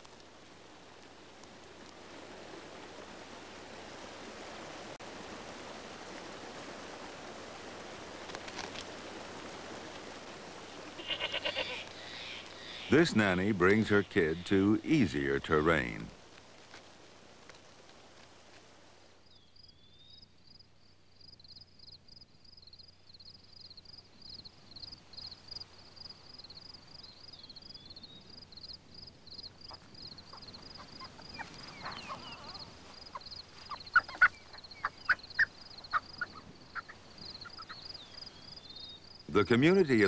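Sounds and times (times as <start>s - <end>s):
ground squirrel alarm chirps: 11.0s - 14.8s
high insect trill: 11.0s - 15.2s.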